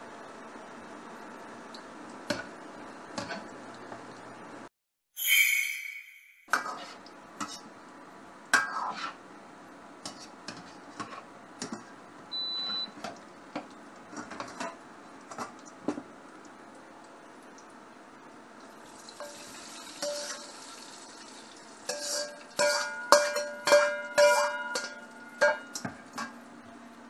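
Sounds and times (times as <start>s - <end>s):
dough sizzling in oil: 14.1s - 26.2s
metal utensil knocking on wok: 22.6s - 25.7s.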